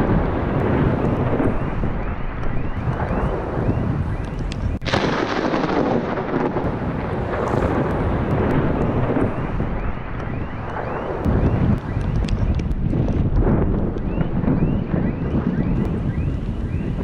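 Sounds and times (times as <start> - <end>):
low rumbling thunder: 0.0 - 17.0
wind buffeting microphone: 0.0 - 17.0.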